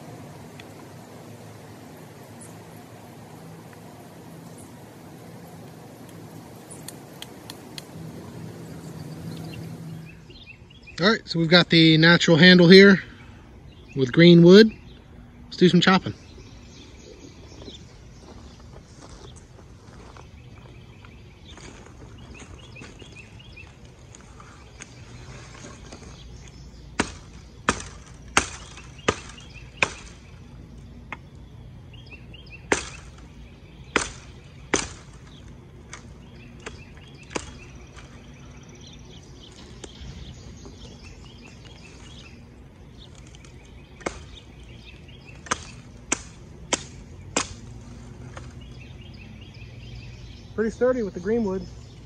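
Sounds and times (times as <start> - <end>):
hatchet chopping branches: 26.9 - 30.4, 32.6 - 38.3, 43.0 - 48.8.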